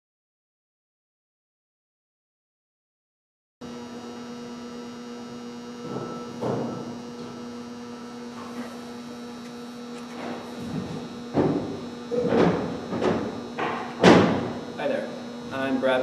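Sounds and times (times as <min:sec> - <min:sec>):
electrical mains hum: 0:03.6 - 0:16.0.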